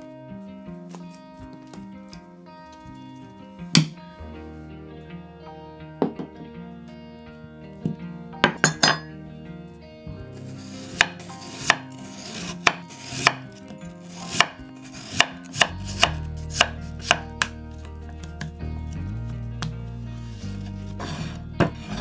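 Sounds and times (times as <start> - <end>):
knife cutting on cutting board: 10.6 - 17.5.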